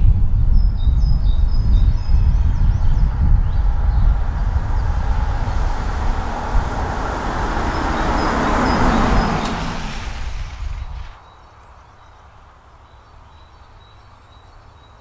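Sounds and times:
car driving past at speed: 3.0s - 11.2s.

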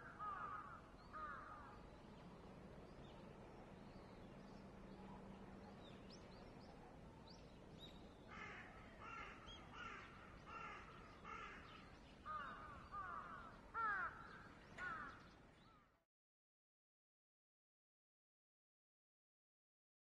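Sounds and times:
crow cawing: 0.0s - 1.7s, 8.3s - 15.8s.

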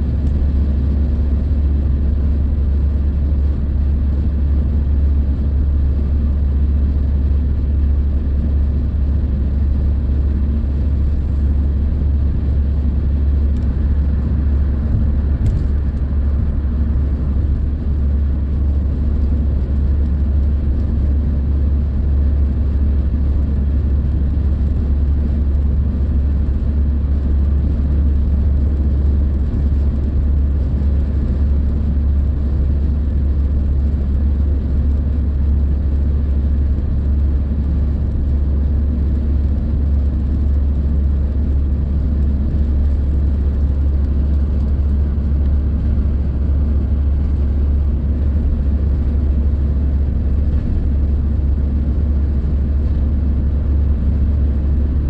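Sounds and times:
car engine: 6.4s - 20.9s, 41.4s - 53.5s
tyre and road noise in car: 9.7s - 20.1s.

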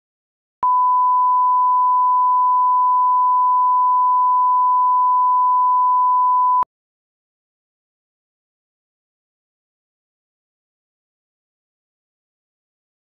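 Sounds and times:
steady sine test tone: 0.6s - 6.6s.

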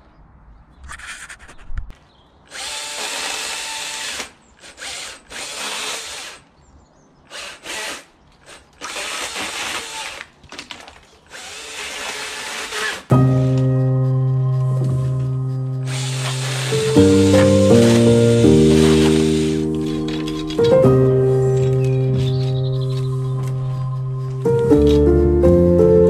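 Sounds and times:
pole pruner chain cutting: 2.5s - 6.4s, 7.3s - 10.7s, 11.3s - 13.7s, 15.9s - 23.1s.

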